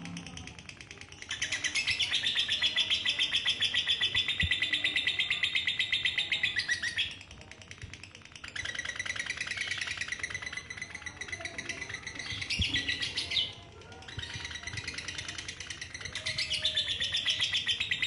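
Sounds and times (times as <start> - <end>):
lovebird trilling: 8.4 - 18.0.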